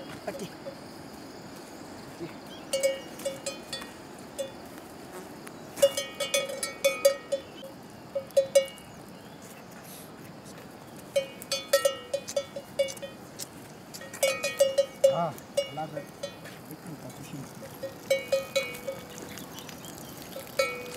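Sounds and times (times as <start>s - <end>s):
cattle bell clinking: 2.6s - 4.6s, 5.8s - 9.0s, 11.1s - 13.3s, 13.9s - 19.6s, 20.2s - 20.9s.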